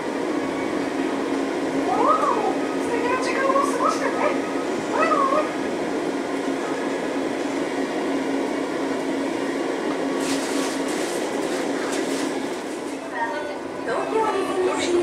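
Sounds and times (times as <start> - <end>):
monorail car interior hum: 0.0 - 15.0
high sing-song voice announcement: 1.8 - 5.6, 13.0 - 15.0.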